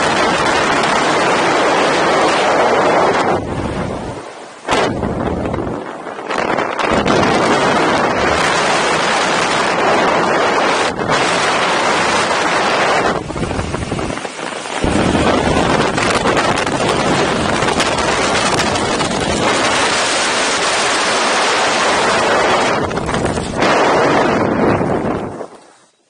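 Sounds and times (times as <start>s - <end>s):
wind rushing over microphone: 0.0s - 25.9s.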